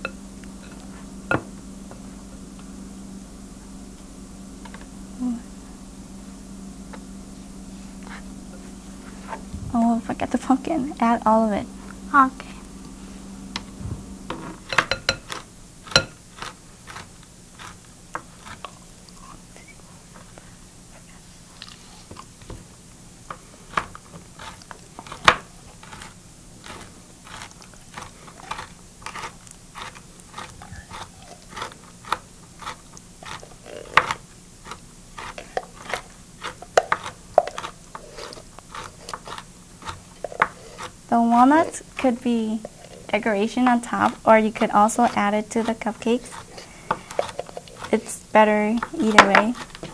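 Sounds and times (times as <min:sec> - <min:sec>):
knife chopping nuts: 0:23.7 - 0:49.9.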